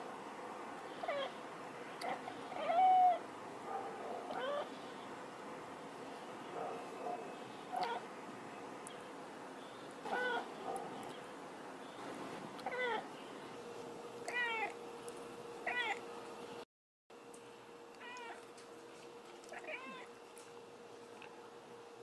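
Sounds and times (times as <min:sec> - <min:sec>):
cat meowing: 0:02.0 - 0:03.2, 0:04.3 - 0:04.7, 0:07.8 - 0:08.0, 0:10.1 - 0:10.5, 0:14.3 - 0:14.8, 0:15.6 - 0:16.0, 0:18.0 - 0:18.4, 0:19.5 - 0:20.1.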